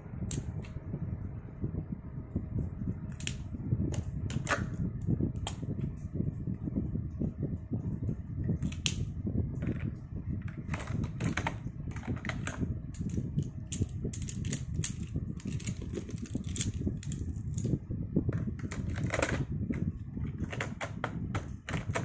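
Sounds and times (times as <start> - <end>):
plastic pens clattering: 10.6 - 17.7, 18.3 - 22.0.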